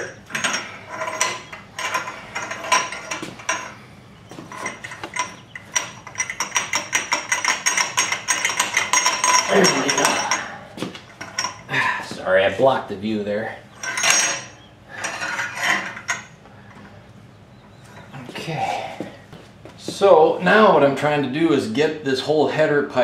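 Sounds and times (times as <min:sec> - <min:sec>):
metal clinks and scrapes: 0:00.0 - 0:03.8, 0:04.4 - 0:11.7, 0:13.7 - 0:16.8.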